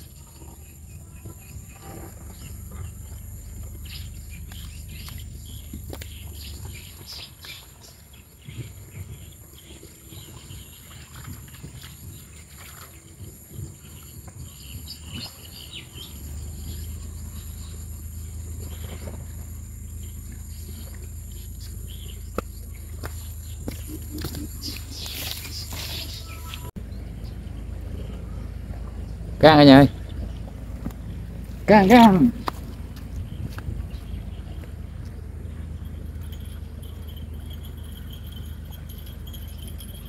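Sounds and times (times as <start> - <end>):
birds chirping: 0.0 - 40.0
constant low rumble: 0.0 - 40.0.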